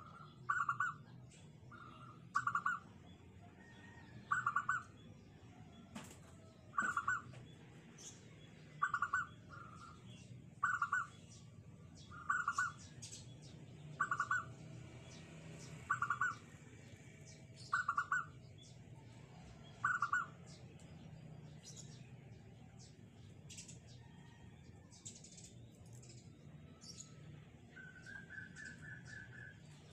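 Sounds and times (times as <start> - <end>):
small birds chirping: 0.0 - 29.9
dove cooing: 6.8 - 7.2, 14.0 - 14.4.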